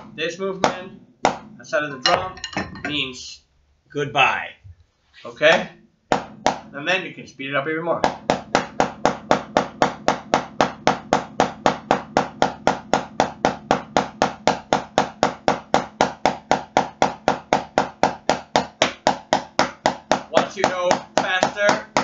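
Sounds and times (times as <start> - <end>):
drumstick striking practice pad: 1.3 - 3.0, 6.1 - 6.7, 8.0 - 22.0.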